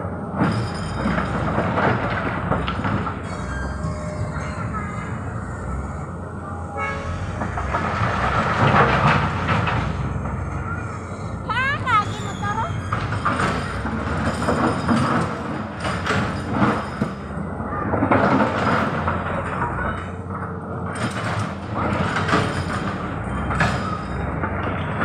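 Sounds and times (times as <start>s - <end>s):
diesel engine humming: 0.0s - 25.0s
rattling of machinery: 0.0s - 25.0s
clatters of stone and steel: 7.3s - 25.0s.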